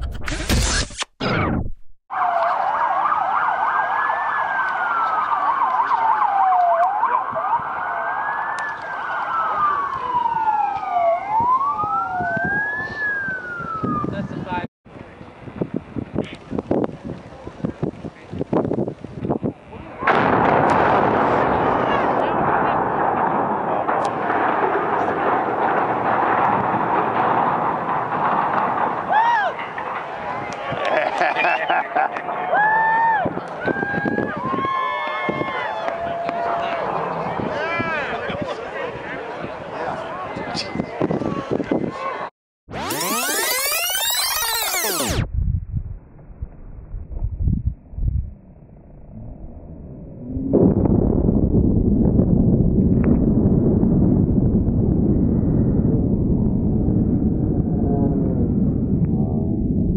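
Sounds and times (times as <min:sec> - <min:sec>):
siren wailing: 0:02.1 - 0:14.3, 0:42.8 - 0:45.3
siren yelping: 0:02.1 - 0:14.3, 0:42.8 - 0:45.3
bridge collapsing roar: 0:19.8 - 0:39.4, 0:42.7 - 0:45.3, 0:48.4 - 0:59.9
debris and water crashing: 0:20.1 - 0:32.5
short falling whoosh: 0:42.8 - 0:59.9.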